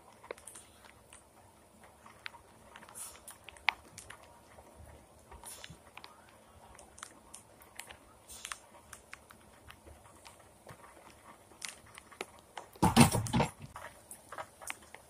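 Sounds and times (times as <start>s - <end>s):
faint rain hiss: 0.0s - 15.0s
rain drips and taps: 0.0s - 15.0s.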